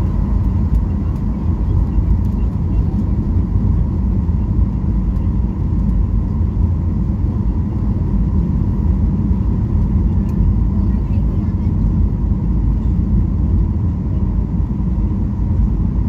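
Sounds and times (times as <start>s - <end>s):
low rumble of jet engines: 0.0s - 16.0s.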